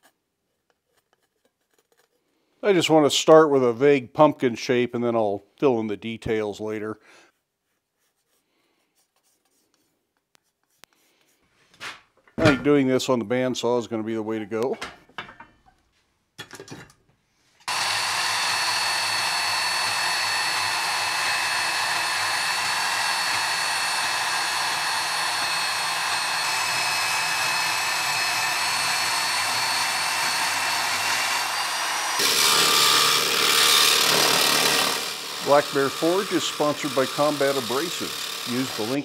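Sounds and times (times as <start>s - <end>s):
bandsaw cutting steel: 17.6s - 39.0s
belt grinder grinding steel: 17.6s - 39.0s.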